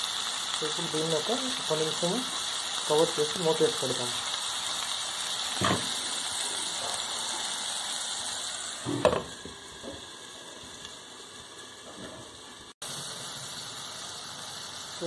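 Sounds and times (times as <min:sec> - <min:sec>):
food sizzling in a pan: 0:00.0 - 0:15.0
glass lid knocking on pan: 0:09.0 - 0:09.3.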